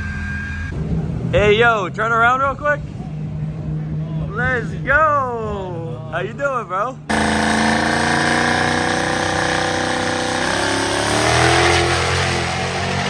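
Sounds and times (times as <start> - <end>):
diesel engine revving high: 7.0 - 13.0.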